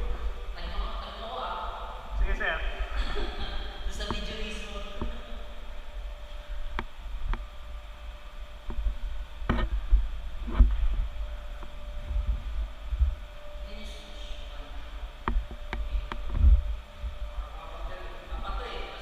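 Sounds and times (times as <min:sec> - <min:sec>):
low rumble: 0:00.0 - 0:19.0
machinery hum: 0:00.0 - 0:19.0.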